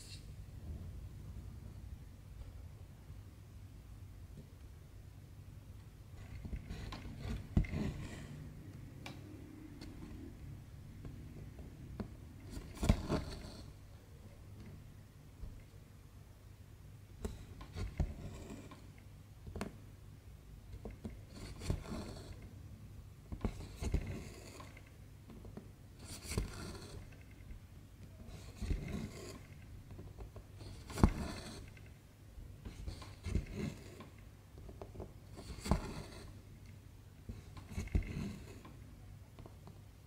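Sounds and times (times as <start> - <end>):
thread rasping through fabric: 6.2 - 8.9, 11.1 - 13.8, 20.8 - 22.5, 23.4 - 25.4, 26.0 - 27.5, 28.1 - 31.9, 32.6 - 34.2, 34.9 - 36.4, 37.3 - 38.8.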